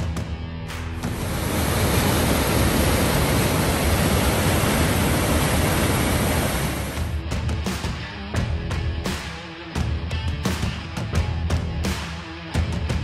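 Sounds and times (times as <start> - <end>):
music: 0.0 - 13.0
waterfall roaring: 1.1 - 7.1.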